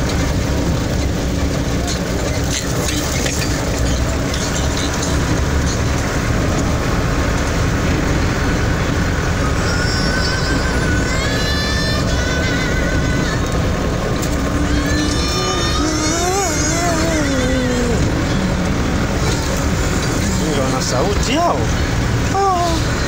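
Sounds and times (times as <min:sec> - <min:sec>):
tyres on gravel: 0:00.0 - 0:10.1
vehicle engine rumble: 0:00.0 - 0:23.0.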